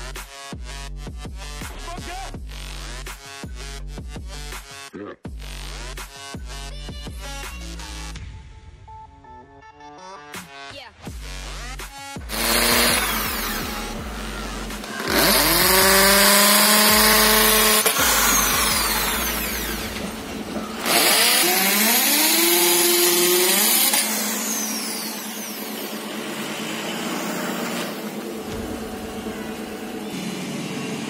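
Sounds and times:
electric drill boring into plastic: 12.3 - 28.1.

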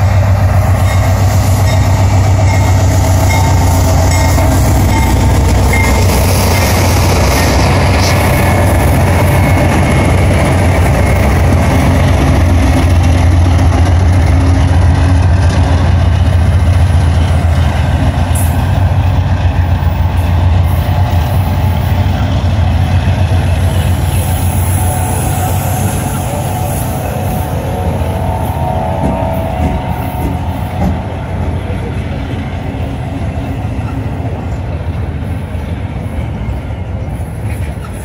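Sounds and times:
freight locomotives rumbling past: 0.0 - 38.0.

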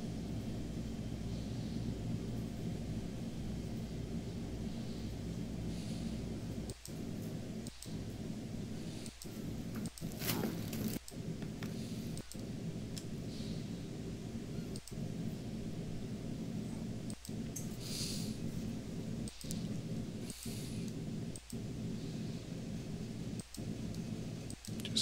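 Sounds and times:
low background hum: 0.0 - 25.0
faint clicks: 6.6 - 8.0, 9.0 - 10.1, 11.0 - 13.1, 14.7 - 15.1, 17.0 - 17.8, 19.2 - 19.8, 20.8 - 21.6, 23.4 - 25.0
short rustle: 10.1 - 11.0.

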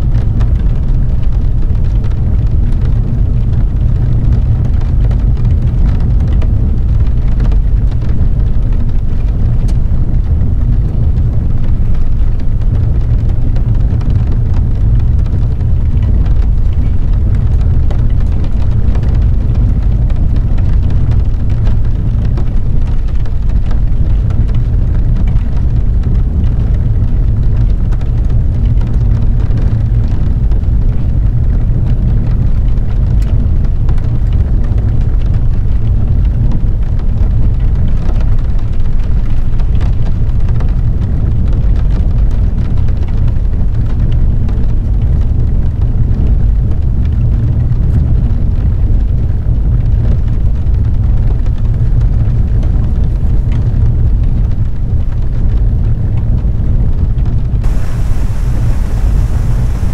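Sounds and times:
car driving on wet road: 57.6 - 59.9
raindrops ticking on windshield: 57.6 - 59.9.

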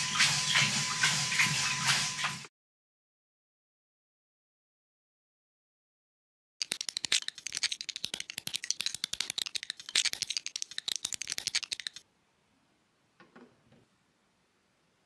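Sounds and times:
plastic bricks clicking and rattling: 6.6 - 12.0.

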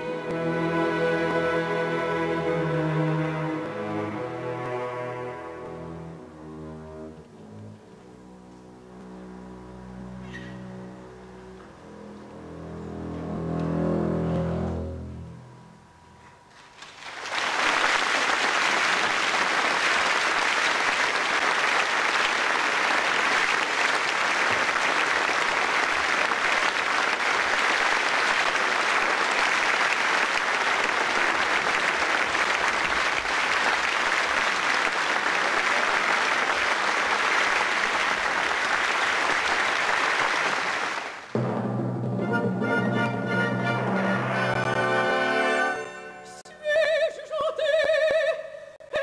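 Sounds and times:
audience applauding: 16.6 - 41.4.

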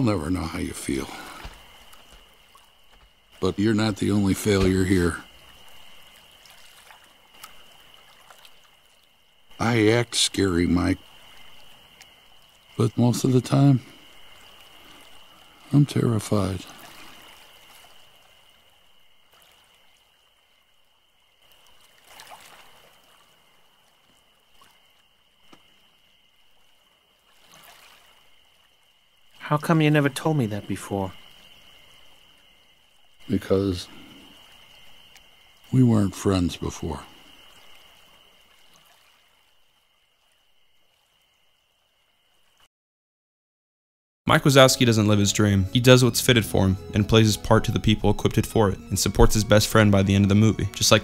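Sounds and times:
lake water lapping: 0.0 - 41.4
light hiss: 0.0 - 42.7
small soft drips: 1.0 - 3.5, 5.1 - 9.6, 11.0 - 13.0, 13.8 - 15.9, 16.6 - 29.4, 33.9 - 35.8, 37.0 - 42.7
thin steady high tone: 44.3 - 51.0.

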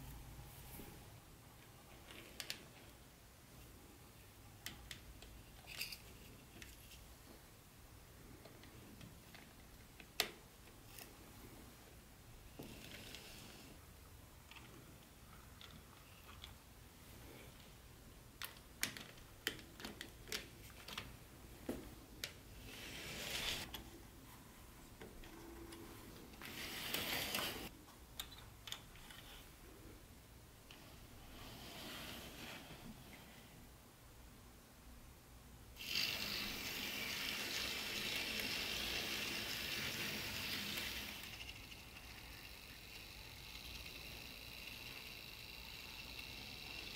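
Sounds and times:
soft hiss: 0.0 - 46.9
faint motor hum: 35.8 - 46.9
model train wheels rattling on track: 35.8 - 46.9.

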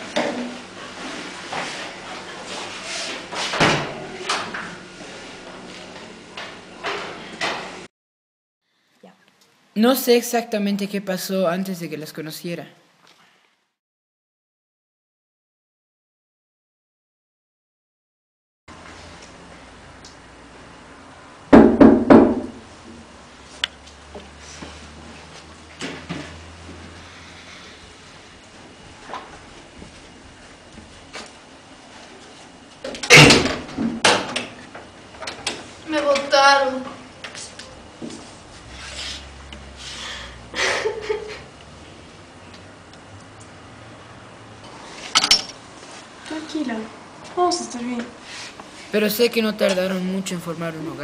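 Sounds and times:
low room hum: 18.7 - 51.0
knocks on a door: 21.5 - 22.6.

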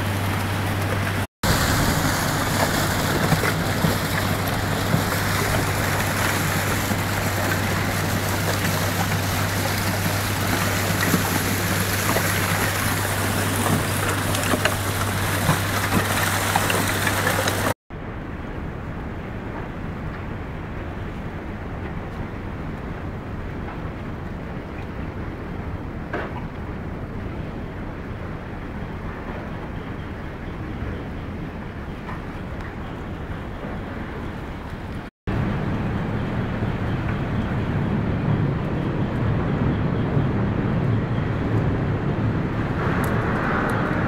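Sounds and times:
ice grinding against barge hull: 0.0 - 17.8
low engine hum: 0.0 - 44.0.

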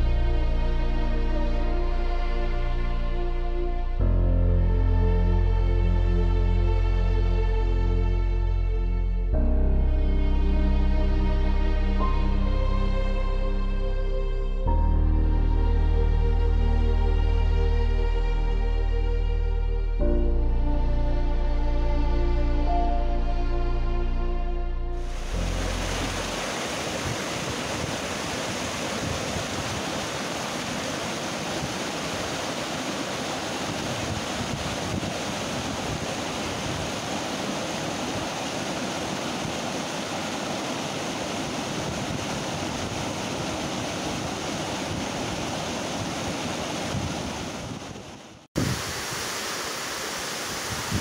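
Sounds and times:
waterfall rushing and splashing: 25.0 - 51.0.

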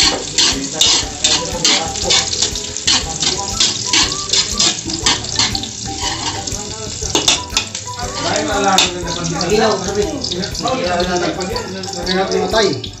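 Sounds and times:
metal spatula scraping a wok: 0.0 - 6.5
onions frying in oil: 0.0 - 13.0.

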